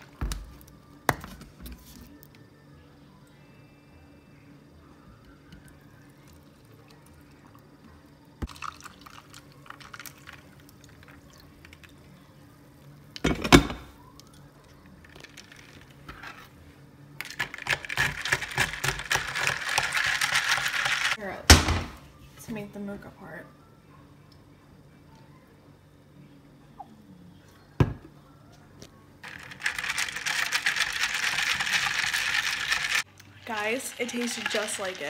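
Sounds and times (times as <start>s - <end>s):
ice clinking: 8.4s - 11.3s, 29.3s - 35.0s
liquid poured over ice: 8.4s - 12.0s, 29.3s - 35.0s
ice and liquid rattling: 8.4s - 12.1s, 17.2s - 21.2s, 29.2s - 35.0s.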